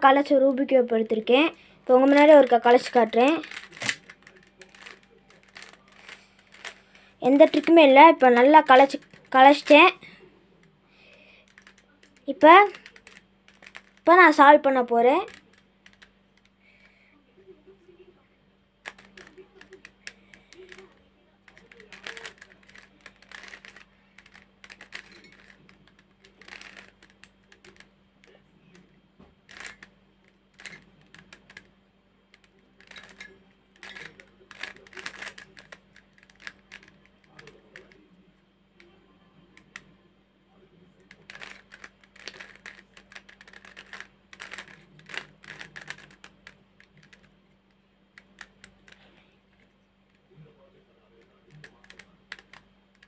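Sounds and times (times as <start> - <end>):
faint steady hum: 0.0 - 53.0
puzzle cube clicking as twisted: 2.0 - 10.0, 11.4 - 14.3, 15.2 - 16.5, 18.8 - 27.9, 29.5 - 29.9, 30.6 - 31.7, 32.3 - 38.0, 41.1 - 47.3, 48.2 - 49.1, 51.6 - 53.0.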